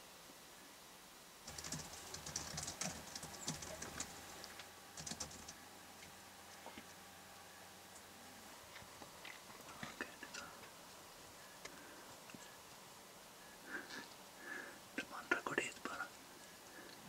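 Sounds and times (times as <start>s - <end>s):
bird pecking seeds in feeder: 1.5s - 5.6s.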